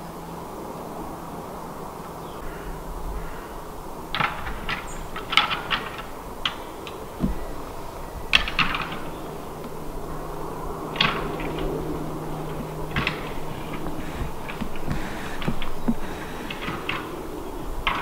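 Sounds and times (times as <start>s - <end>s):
antlers clacking together: 4.1s - 18.0s.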